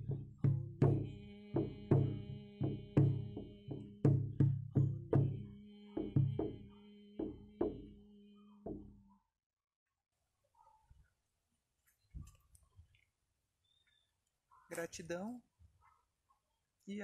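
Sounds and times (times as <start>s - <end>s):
hand drum beats: 0.0s - 9.1s.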